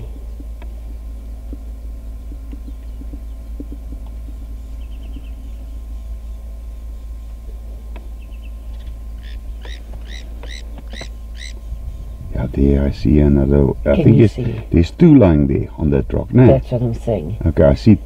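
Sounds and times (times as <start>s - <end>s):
bird calling repeated notes: 0.0s - 12.3s
faint hum: 0.0s - 18.0s
steady low rumble: 0.0s - 18.0s
bird trill: 1.2s - 12.6s.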